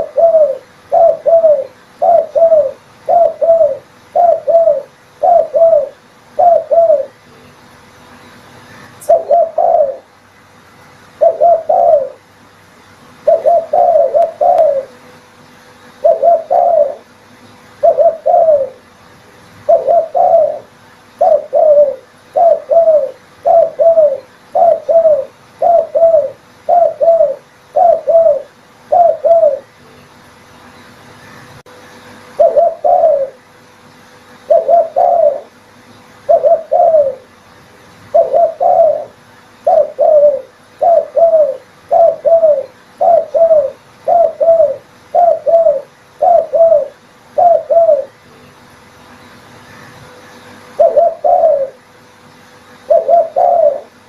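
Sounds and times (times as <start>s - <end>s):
dove cooing: 0.0s - 7.2s, 8.7s - 10.2s, 11.2s - 12.3s, 13.2s - 15.1s, 16.0s - 17.2s, 17.8s - 18.9s, 19.6s - 29.8s, 32.4s - 33.5s, 34.4s - 35.6s, 36.2s - 37.4s, 38.1s - 48.2s, 50.7s - 51.8s, 52.9s - 54.0s.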